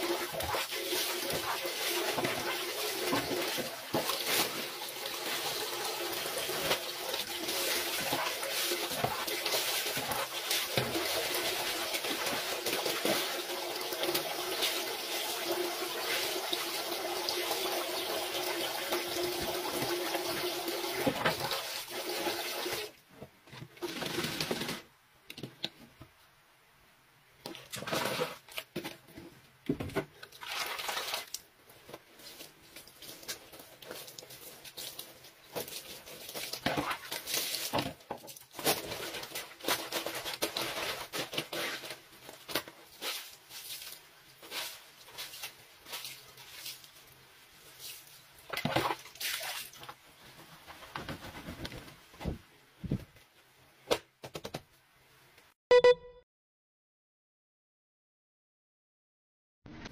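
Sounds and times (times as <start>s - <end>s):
clothes scrubbed on washboard: 0.0s - 16.6s, 32.2s - 47.0s
water rushing into a sink: 0.0s - 23.0s.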